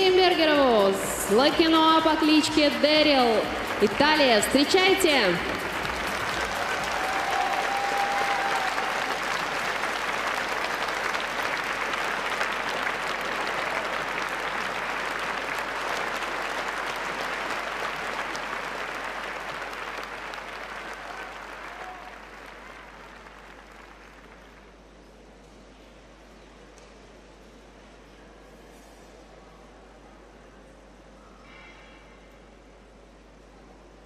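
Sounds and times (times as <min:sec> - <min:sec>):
audience applauding: 0:03.4 - 0:24.8.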